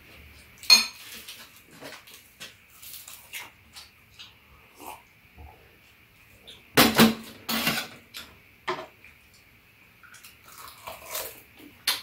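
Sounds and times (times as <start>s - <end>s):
tableware clattering on metal tray: 6.8s - 8.0s.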